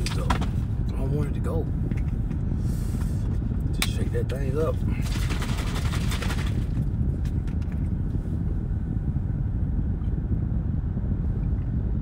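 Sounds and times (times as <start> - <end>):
low rumble in car cabin: 0.0 - 12.0
liquid sloshing in shaken bottle: 5.0 - 6.8.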